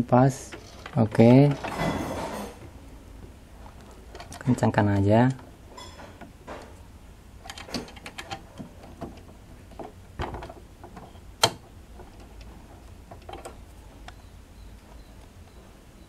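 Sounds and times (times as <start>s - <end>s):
metal parts clicking and tapping: 7.4s - 13.6s.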